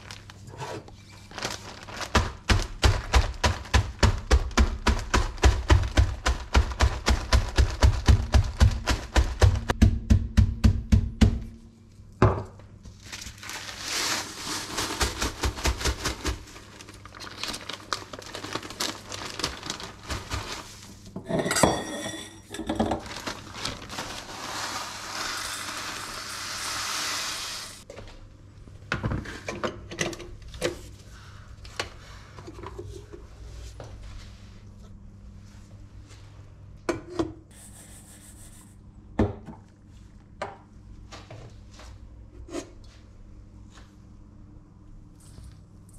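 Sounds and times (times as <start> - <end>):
plastic bag crinkling: 0.0 - 0.5, 1.1 - 4.1, 12.9 - 21.0, 22.5 - 26.6.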